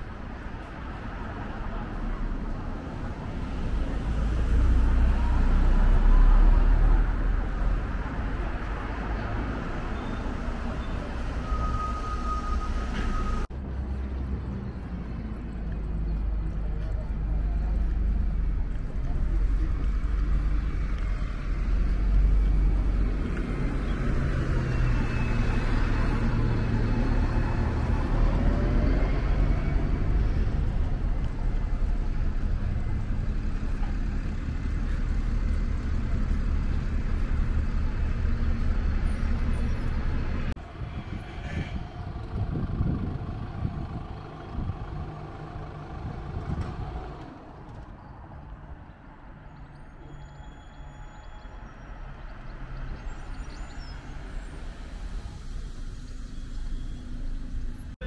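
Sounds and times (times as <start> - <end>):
quiet street sound: 0.0 - 58.0
road vehicle engines running: 0.0 - 58.0
heavy low rumble: 25.7 - 47.4.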